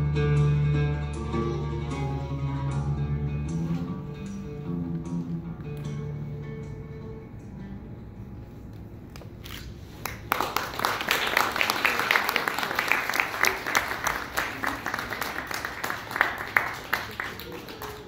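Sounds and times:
audience applauding: 9.9s - 18.0s.

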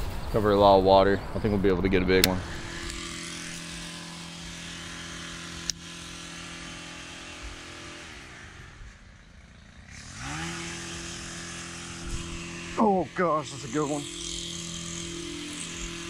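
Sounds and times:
sharp click: 2.2s - 3.0s
fishing reel gear whir: 2.2s - 16.0s.

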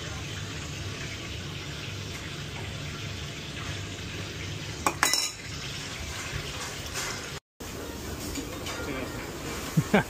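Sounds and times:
metal kitchenware clattering: 4.8s - 7.4s.

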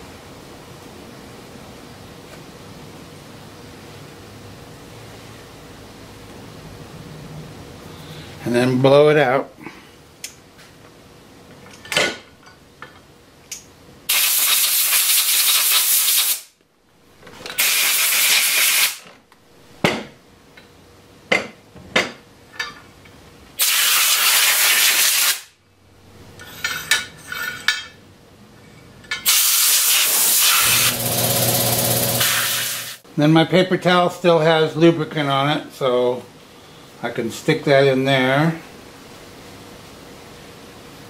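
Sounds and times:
compressed air hissing: 14.1s - 16.5s, 17.6s - 19.0s, 23.6s - 25.5s, 29.3s - 33.0s.

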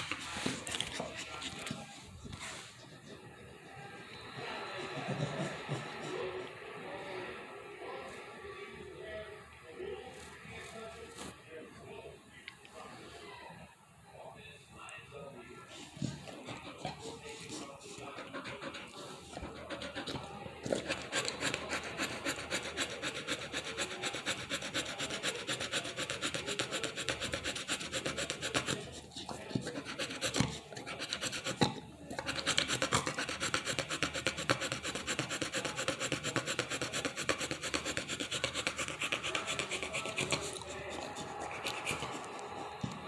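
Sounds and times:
dog panting heavily: 15.8s - 31.6s.

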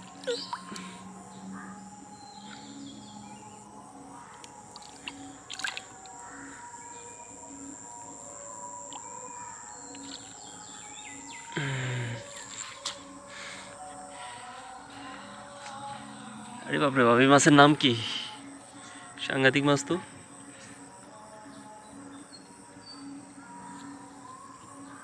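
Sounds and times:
high insect-like tone: 0.0s - 23.4s
hand splashing in water: 4.7s - 6.1s.

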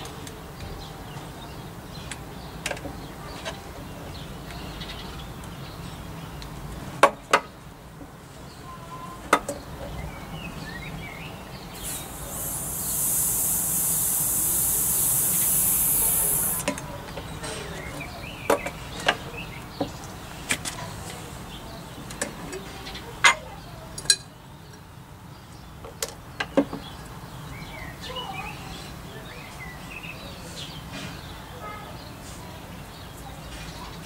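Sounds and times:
air hissing into vacuum chamber: 11.7s - 16.7s.

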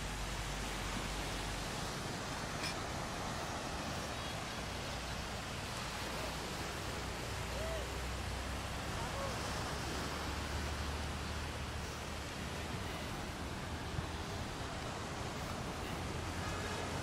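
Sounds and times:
low wind rumble: 0.0s - 17.0s
ocean surf on beach: 0.0s - 17.0s.

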